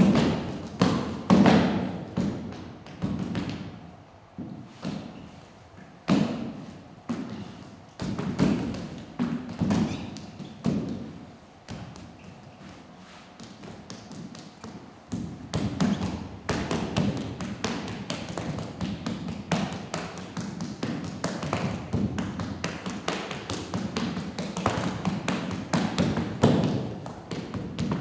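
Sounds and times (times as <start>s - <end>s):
sneakers tapping on stage floor: 6.1s - 28.0s.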